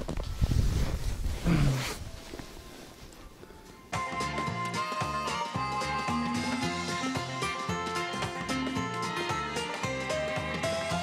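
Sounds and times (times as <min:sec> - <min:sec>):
low rumbling wind: 0:00.0 - 0:02.4
microphone handling noise: 0:00.0 - 0:02.7
person humming: 0:01.4 - 0:02.0.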